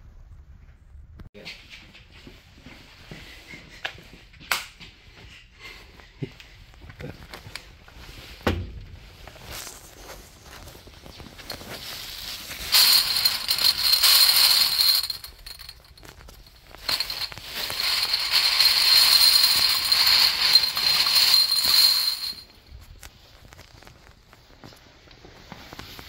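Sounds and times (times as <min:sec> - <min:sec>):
plastic bag crinkling: 0:09.6 - 0:24.1
glass test tubes clinking: 0:11.4 - 0:22.6.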